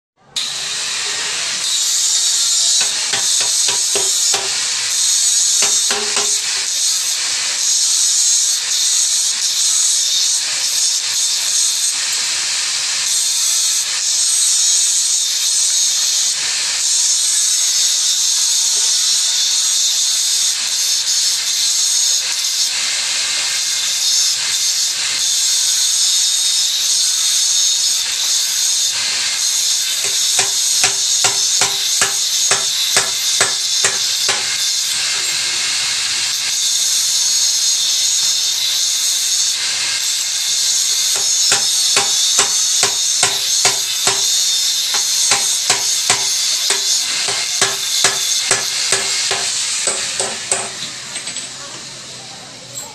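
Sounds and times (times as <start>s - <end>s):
angle grinder cutting metal: 0.3s - 51.5s
sharp knocks: 2.8s - 4.7s, 5.6s - 6.5s, 41.2s - 50.8s.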